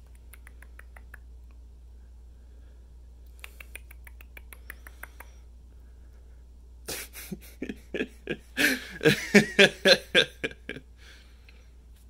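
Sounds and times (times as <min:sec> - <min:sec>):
guinea pig nibbling clicks: 0:00.0 - 0:01.6, 0:03.2 - 0:05.4.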